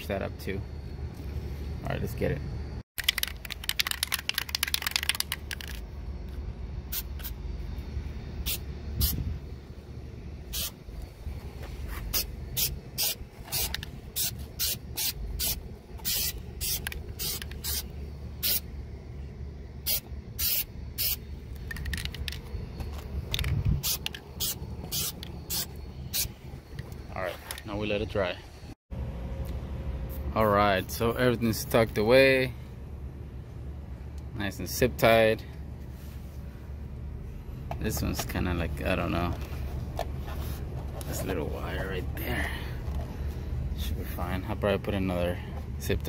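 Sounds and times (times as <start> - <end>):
spray can hissing: 10.5 - 10.8, 12.0 - 18.6, 19.9 - 21.2.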